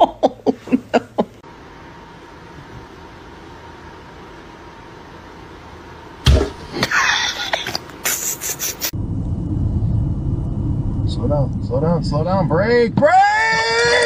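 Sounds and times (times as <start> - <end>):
low rumble of street noise: 0.0 - 14.0
loud smack: 6.2 - 6.6.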